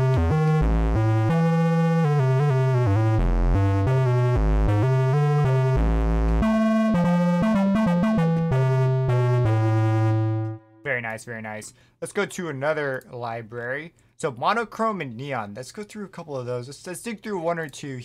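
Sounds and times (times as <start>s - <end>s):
low synthesizer notes: 0.0s - 10.9s.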